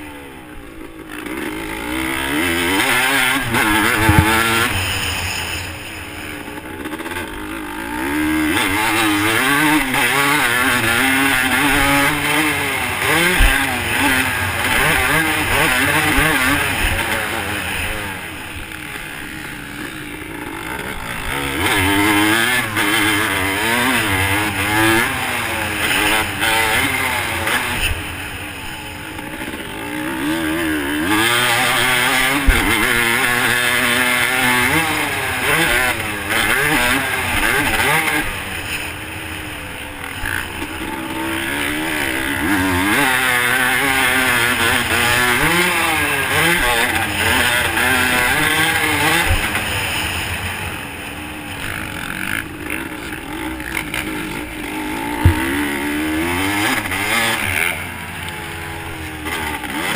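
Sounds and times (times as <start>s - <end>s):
dirt bike engine revving: 0.0s - 59.9s
sharp knock: 3.9s - 4.8s, 55.2s - 55.6s.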